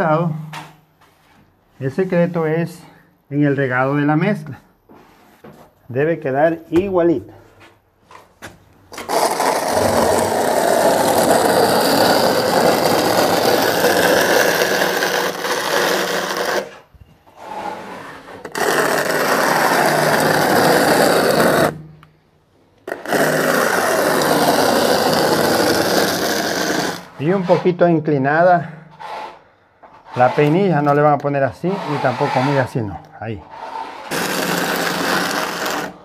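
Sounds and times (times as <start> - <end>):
trowel scraping adhesive on wall: 8.9 - 22.0, 22.8 - 27.9, 28.9 - 36.0.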